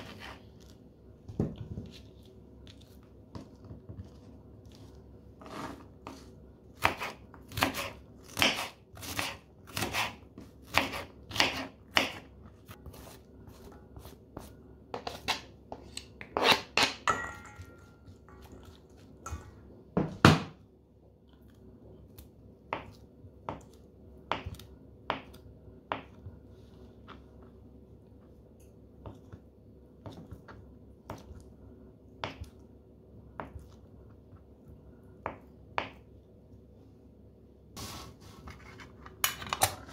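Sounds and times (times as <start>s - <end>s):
knife chopping on cutting board: 6.8s - 12.2s.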